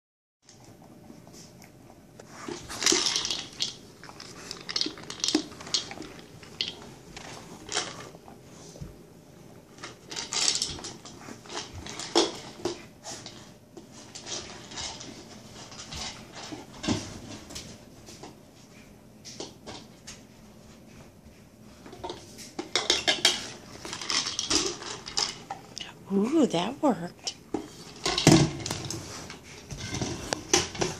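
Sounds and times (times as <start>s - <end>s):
treats rattling inside toy: 2.7s - 8.1s, 22.7s - 25.8s
plastic dog toy clattering: 2.8s - 8.0s.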